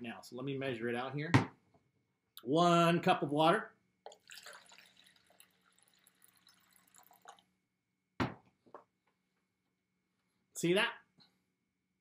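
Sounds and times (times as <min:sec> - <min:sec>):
water pouring into a cup: 0:04.1 - 0:07.5.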